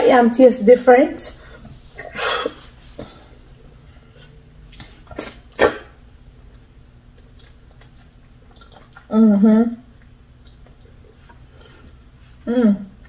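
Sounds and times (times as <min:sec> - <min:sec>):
faint steady hum: 0:00.0 - 0:13.0
person chewing food: 0:06.4 - 0:09.1, 0:09.9 - 0:12.4.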